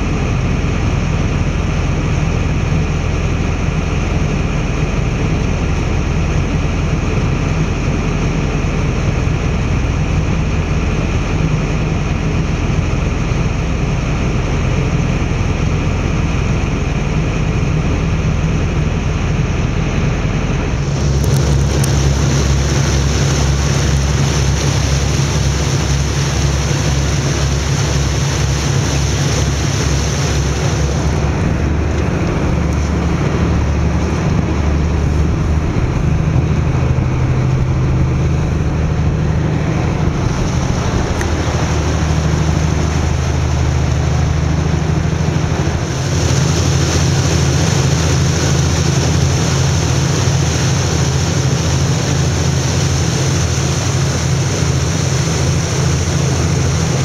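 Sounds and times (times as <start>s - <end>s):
boat engine pulsing hum: 0.0s - 57.0s
water rushing past hull: 0.0s - 57.0s
wind on microphone: 17.6s - 52.7s.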